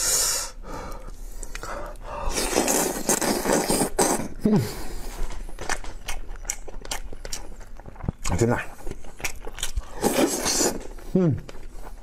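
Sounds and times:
mouth eating and sucking meat: 0.0 - 12.0.

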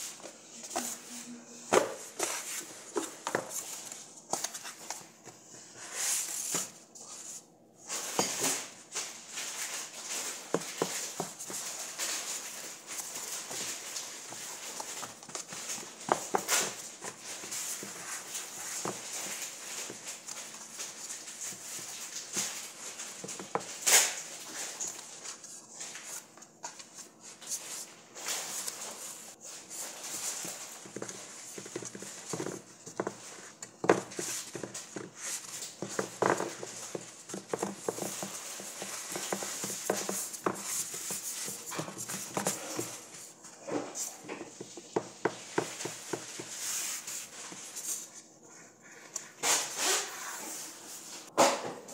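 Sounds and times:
hands rubbing and patting dough: 0.0 - 51.3.

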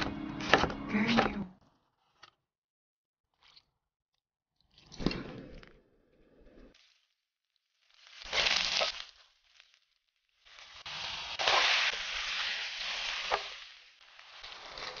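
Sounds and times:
food sizzling in a wok: 8.0 - 9.4, 10.4 - 15.0.

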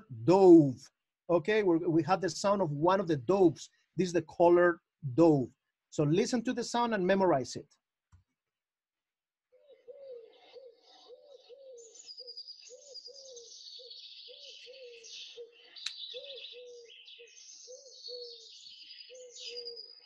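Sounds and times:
dove cooing: 9.6 - 20.0
small birds chirping: 9.6 - 20.0.

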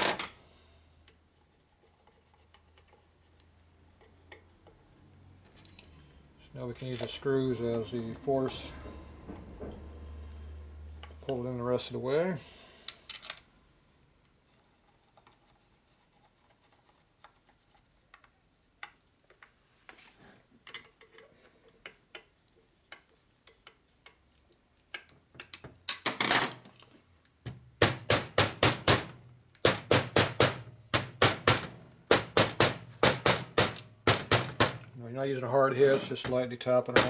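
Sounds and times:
clicks of screws and tools: 12.9 - 13.5, 20.6 - 22.3.

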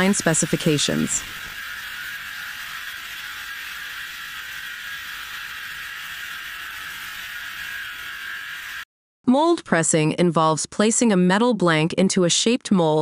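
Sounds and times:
metal-working machine whirring: 0.0 - 8.9.

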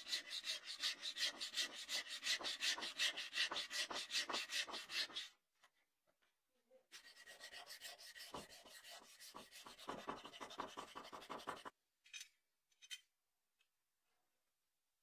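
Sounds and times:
rapid rubbing by hand: 7.0 - 11.7.

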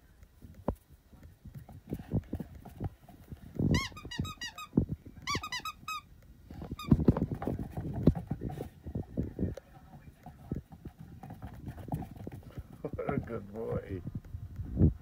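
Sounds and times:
squeaky toy squeaks: 3.7 - 6.1, 6.7 - 7.1.

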